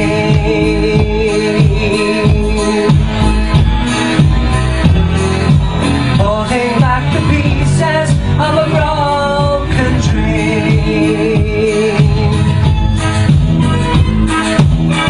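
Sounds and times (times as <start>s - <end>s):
man singing into microphone: 0.0s - 3.5s, 6.1s - 12.8s
recorded backing track: 0.0s - 15.0s.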